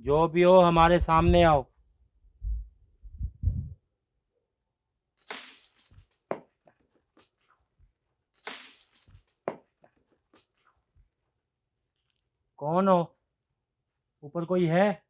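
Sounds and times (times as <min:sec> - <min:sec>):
low thumps: 0:00.8 - 0:01.6, 0:02.4 - 0:03.8
faint high insect trill: 0:01.4 - 0:06.3
small clicks: 0:11.9 - 0:12.3.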